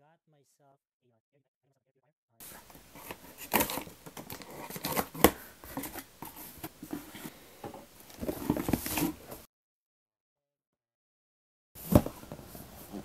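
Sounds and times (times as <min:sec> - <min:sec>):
objects rustling and clicking: 0:02.4 - 0:09.5.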